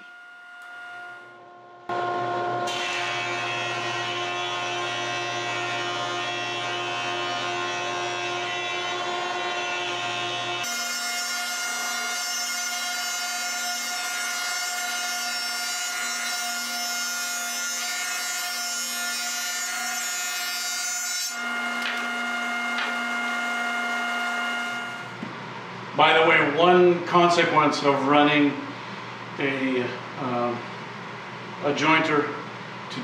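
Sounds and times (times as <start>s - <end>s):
jointer motor whine: 0.0s - 14.2s, 14.9s - 25.2s.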